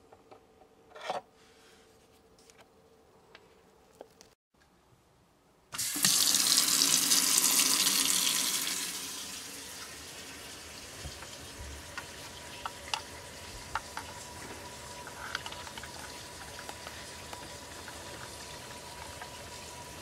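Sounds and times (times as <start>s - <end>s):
faucet water running into sink: 5.8s - 20.0s.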